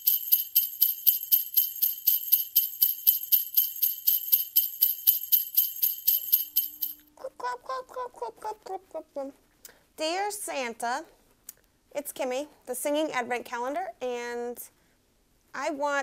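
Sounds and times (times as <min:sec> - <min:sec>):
sleigh bells jingling: 0:00.0 - 0:07.0.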